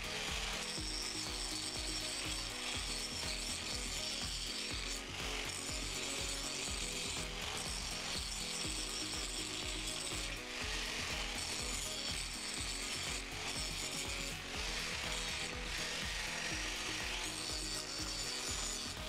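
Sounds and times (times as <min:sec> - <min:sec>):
angle grinder grinding metal: 0:00.0 - 0:19.0.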